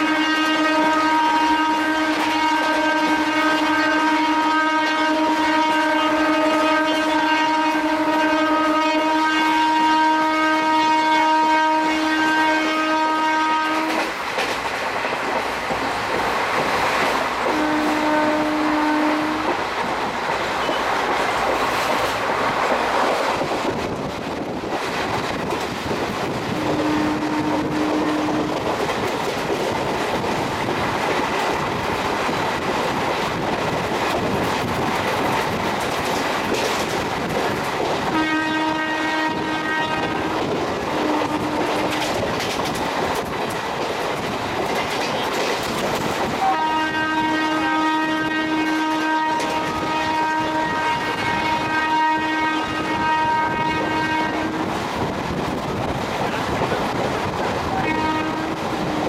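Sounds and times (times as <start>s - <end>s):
locomotive horn blasts: 0.0s - 14.1s, 17.5s - 19.6s, 26.5s - 28.6s, 38.0s - 42.2s, 46.4s - 54.8s, 57.7s - 59.0s
train wheels clickety-clack on rails: 0.0s - 59.0s.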